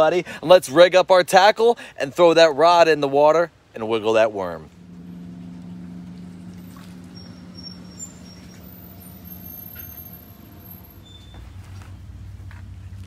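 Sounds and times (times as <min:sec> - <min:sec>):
steady low hum: 0:04.6 - 0:12.9.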